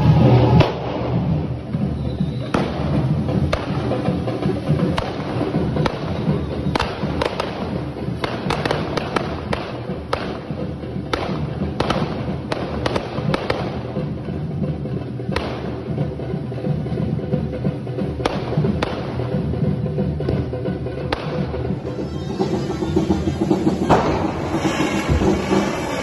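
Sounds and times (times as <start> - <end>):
firework bangs: 0.0 - 14.1, 15.3 - 15.9, 18.2 - 19.4, 21.1 - 26.0
fireworks fizzing: 0.0 - 14.2, 21.2 - 26.0
drum band beating: 0.0 - 26.0.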